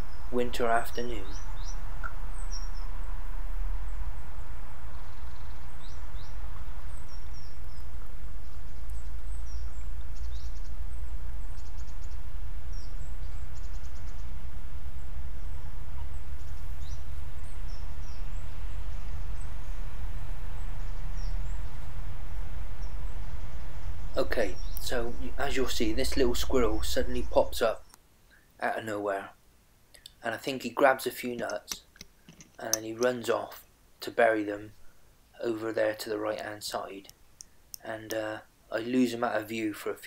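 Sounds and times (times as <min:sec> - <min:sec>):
steady low rumble: 0:00.0 - 0:27.9
small birds chirping: 0:00.0 - 0:28.6.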